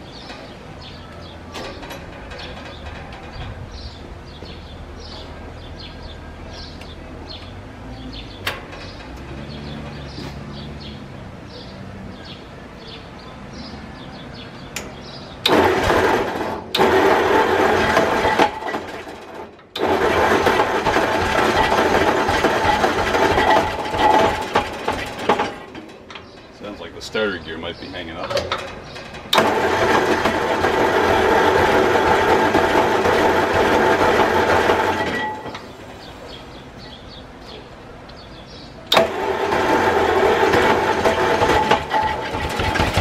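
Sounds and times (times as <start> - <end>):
engine starter grinding: 1.5 - 5.1, 15.0 - 27.0, 27.7 - 36.4, 38.9 - 43.0.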